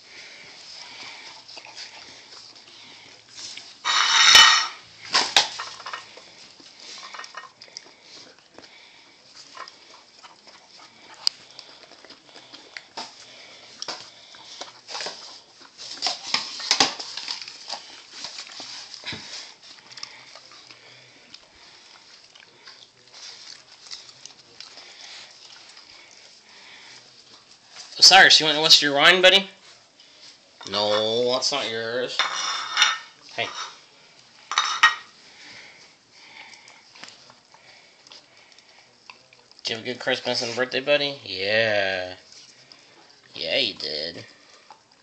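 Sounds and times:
dogs licking and chewing: 0:00.0 - 0:45.0
plates scraping on tile: 0:03.8 - 0:06.1, 0:32.2 - 0:33.8, 0:34.5 - 0:35.1.

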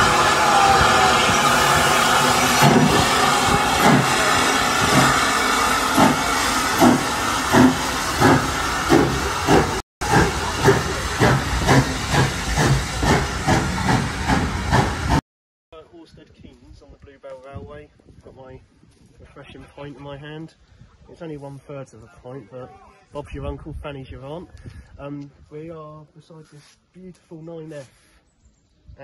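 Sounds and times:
steam hissing: 0:00.0 - 0:15.2
steam locomotive exhaust chuffs: 0:00.0 - 0:15.2.

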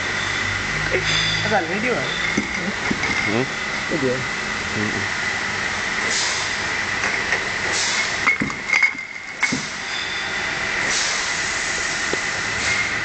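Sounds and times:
high whine: 0:00.0 - 0:06.0
machinery humming: 0:00.0 - 0:13.0
glass bottles clinking: 0:01.0 - 0:03.6, 0:08.2 - 0:10.2.

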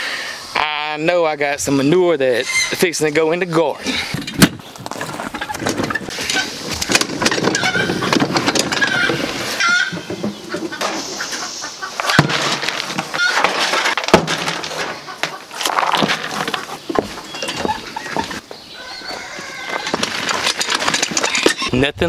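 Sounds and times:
chickens clucking: 0:03.7 - 0:21.7
cart rattling on gravel: 0:04.2 - 0:11.0, 0:12.0 - 0:18.4, 0:19.0 - 0:21.7.

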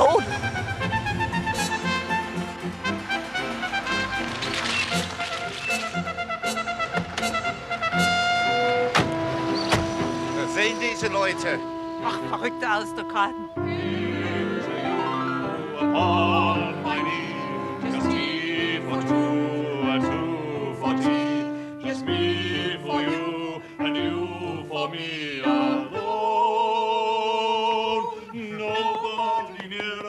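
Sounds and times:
grand piano accompaniment: 0:00.0 - 0:26.4
operatic singing with vibrato: 0:07.4 - 0:30.0.

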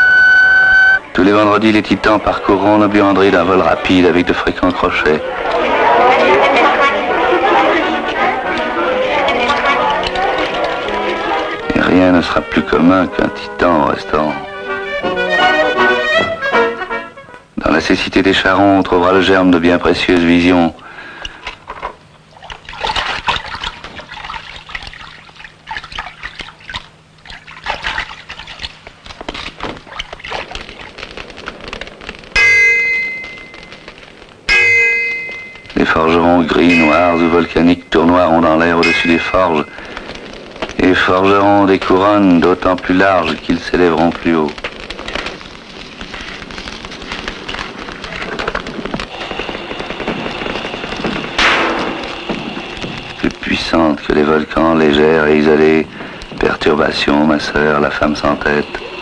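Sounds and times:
dense crackling: 0:00.0 - 0:59.0
water pouring and splashing: 0:21.2 - 0:32.4
thin high tone: 0:32.4 - 0:39.8.

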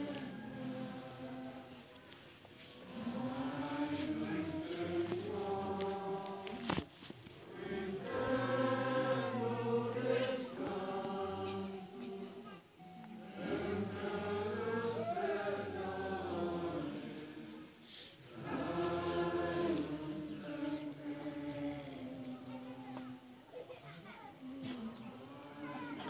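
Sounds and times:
group singing a slow hymn: 0:00.0 - 0:23.5, 0:24.4 - 0:26.0.

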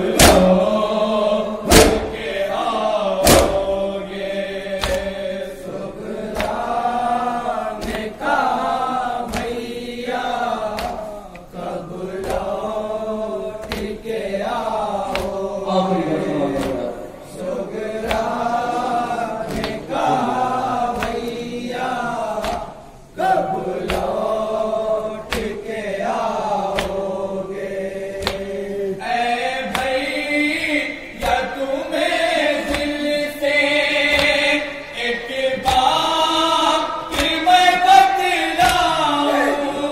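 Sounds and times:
rhythmic chest-beating slaps: 0:00.0 - 0:15.7, 0:16.3 - 0:39.9
group chanting a lament: 0:00.0 - 0:39.9.

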